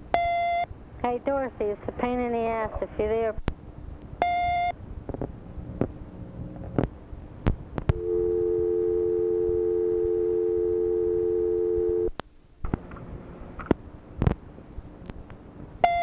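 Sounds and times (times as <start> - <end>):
telephone dial tone: 7.9 - 12.1.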